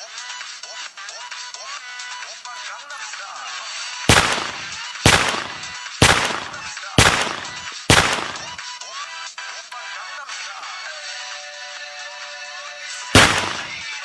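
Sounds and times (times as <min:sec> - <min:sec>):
gunshots: 0:04.1 - 0:08.6, 0:13.2 - 0:14.0.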